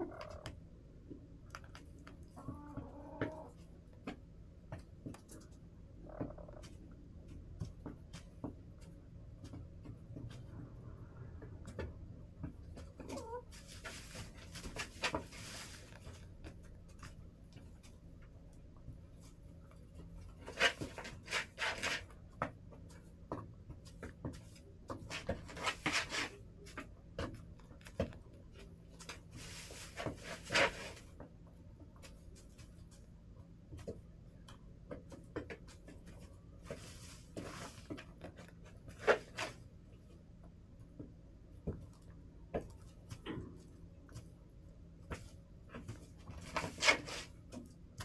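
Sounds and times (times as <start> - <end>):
chickens pecking and scratching: 0.0 - 48.0.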